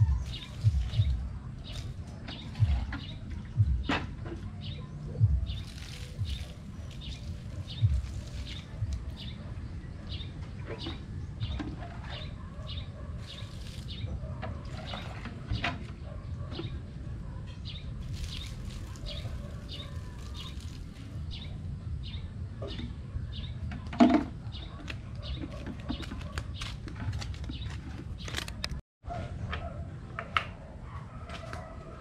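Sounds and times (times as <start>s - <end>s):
steady low rumble: 0.0s - 10.6s
birds chirping: 0.0s - 28.8s.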